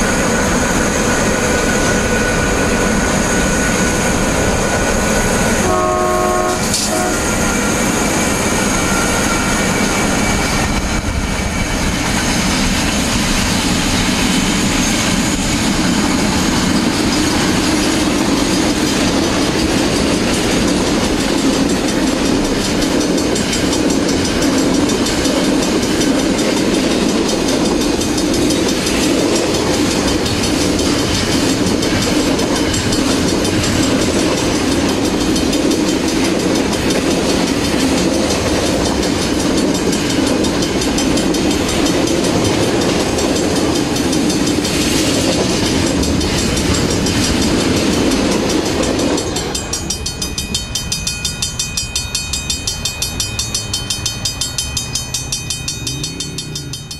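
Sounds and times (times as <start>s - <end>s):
train wheels rolling on rails: 0.0s - 56.9s
level crossing warning bell: 14.7s - 56.9s.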